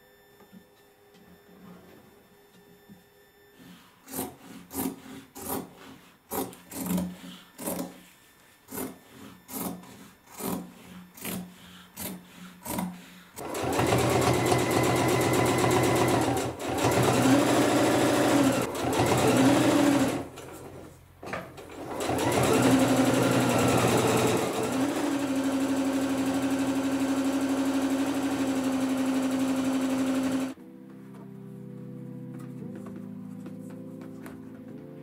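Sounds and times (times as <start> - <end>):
sewing machine stitching: 12.0 - 30.6.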